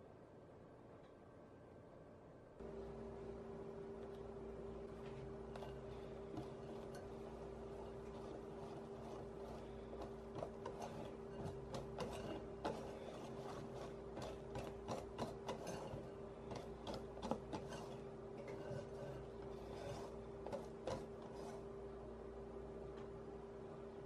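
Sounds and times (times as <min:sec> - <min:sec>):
faint steady hum: 0:00.0 - 0:24.0
whisk clicking against glass bowl: 0:05.5 - 0:19.2.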